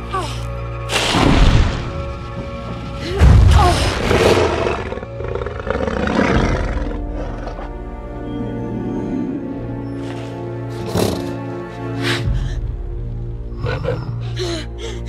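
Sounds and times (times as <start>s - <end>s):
orchestral score: 0.0s - 15.0s
dragon roaring: 3.9s - 7.7s.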